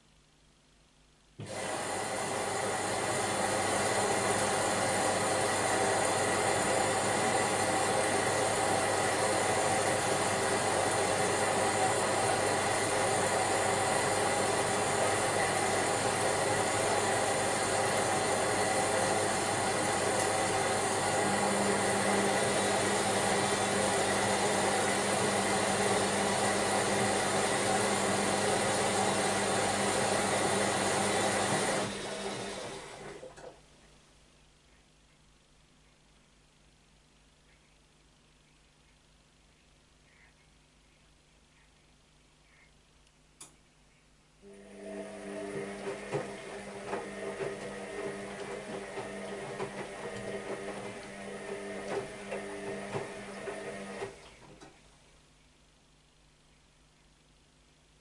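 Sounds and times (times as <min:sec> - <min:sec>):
washing machine rushing hum: 0:01.4 - 0:33.6, 0:44.5 - 0:54.8.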